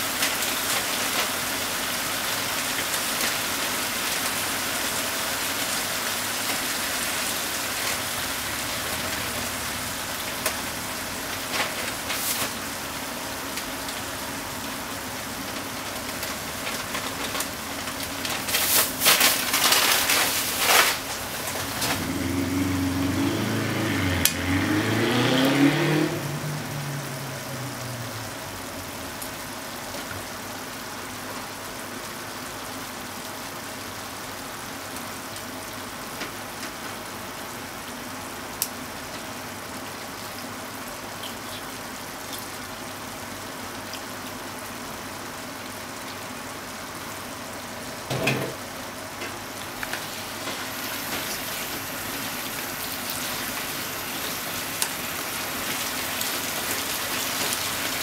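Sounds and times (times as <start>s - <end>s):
food sizzling in frying pan: 0.0s - 58.0s
low hum rising and falling: 21.8s - 28.7s.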